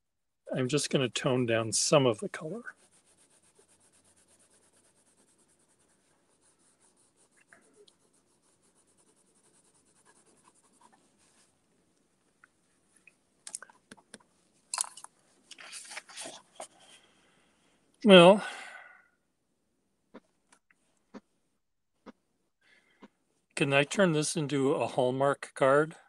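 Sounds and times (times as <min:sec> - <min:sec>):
coloured pencils scratching on paper: 0:01.8 - 0:11.5.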